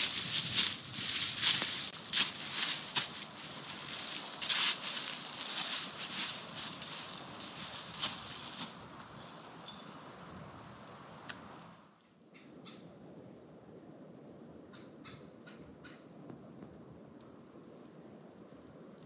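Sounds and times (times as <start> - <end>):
footsteps crunching on dry leaves: 0.0 - 9.2
faint outdoor hiss: 0.0 - 12.4.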